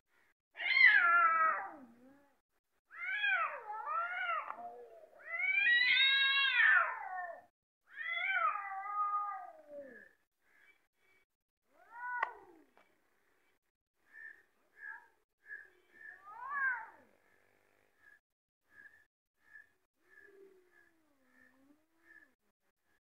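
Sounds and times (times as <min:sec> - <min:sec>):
cats yowling: 0:00.6 - 0:02.3, 0:02.9 - 0:10.2, 0:16.1 - 0:17.1.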